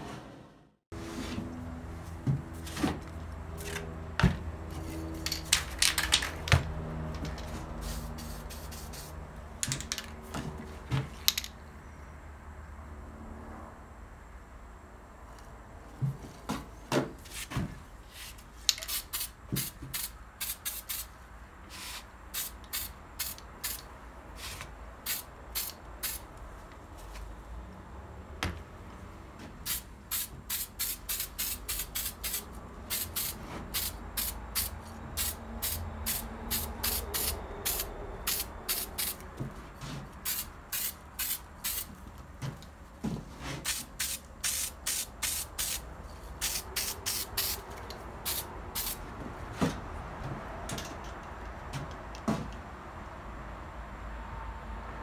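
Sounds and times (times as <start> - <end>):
spray can hissing bursts: 7.8 - 9.2, 18.7 - 26.2, 29.6 - 39.2, 40.2 - 41.9, 43.6 - 49.0.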